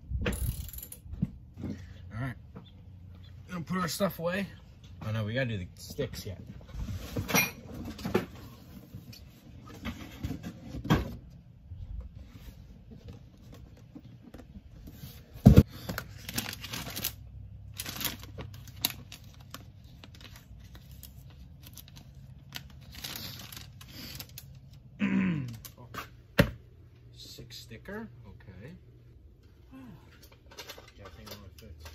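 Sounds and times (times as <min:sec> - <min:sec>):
paper and cardboard rustling: 0:12.1 - 0:24.7.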